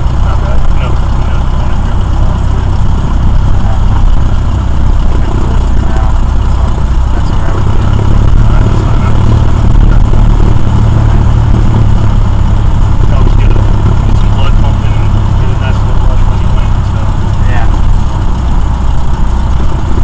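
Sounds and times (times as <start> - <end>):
aircraft engine and propeller drone: 0.0 - 20.0.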